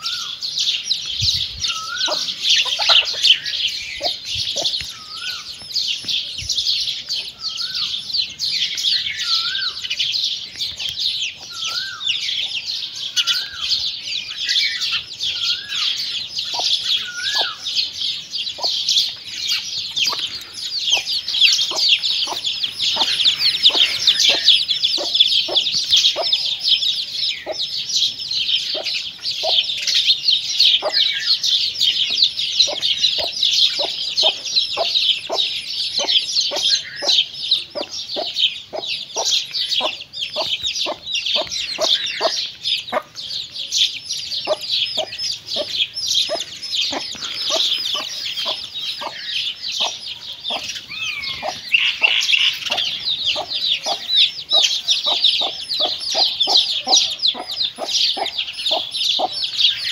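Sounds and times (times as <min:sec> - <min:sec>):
chicks peeping: 0:00.0 - 0:59.9
hen clucking: 0:01.7 - 0:04.8, 0:18.5 - 0:26.8, 0:27.4 - 0:27.7, 0:28.7 - 0:29.7, 0:32.6 - 0:43.2, 0:44.4 - 0:59.9.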